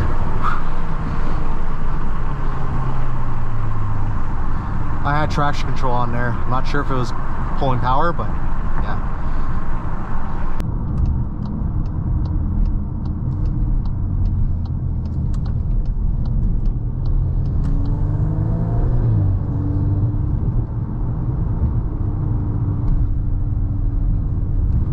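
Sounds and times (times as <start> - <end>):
car engine and road rumble: 0.0 - 24.9
light ticking: 10.8 - 18.0.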